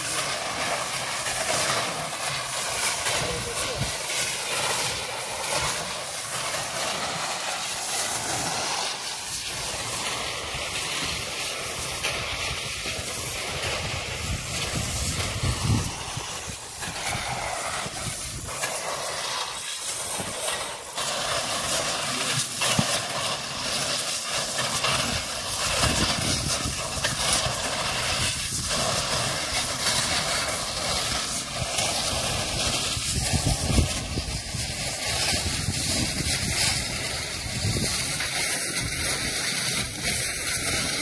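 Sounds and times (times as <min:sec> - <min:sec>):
wind buffeting microphone: 0:11.8 - 0:18.7, 0:25.1 - 0:28.9, 0:31.5 - 0:38.2.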